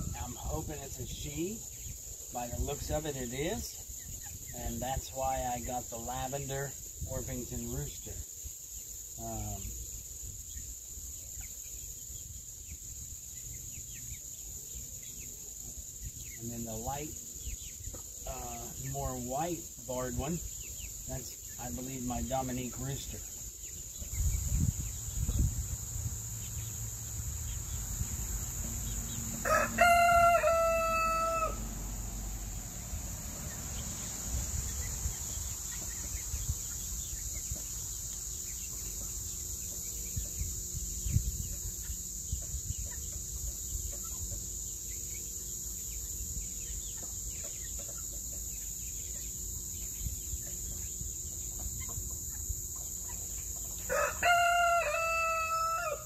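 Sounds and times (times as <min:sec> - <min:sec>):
rooster crowing: 0:29.3 - 0:32.2, 0:53.9 - 0:56.0.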